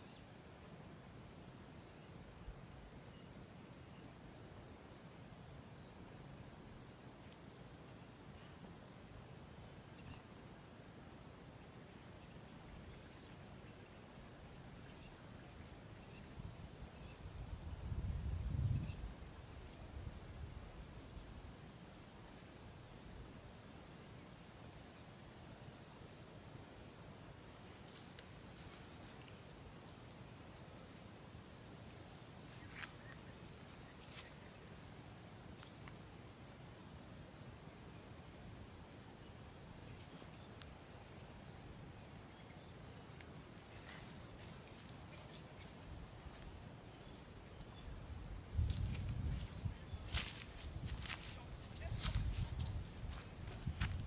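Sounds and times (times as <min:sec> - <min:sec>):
insects trilling: 0:00.0 - 0:54.0.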